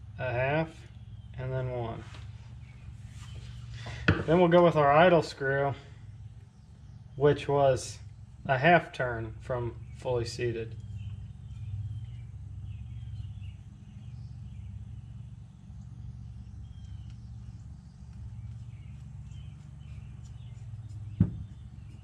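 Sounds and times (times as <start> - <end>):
low hum: 0.0 - 22.0
bird chirps: 5.3 - 22.0.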